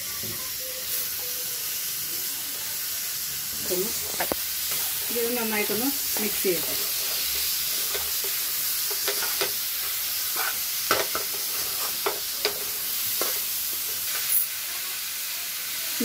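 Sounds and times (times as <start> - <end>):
chicken sizzling in hot oil: 0.0 - 16.0
metal spoon scraping a pan: 3.9 - 14.6.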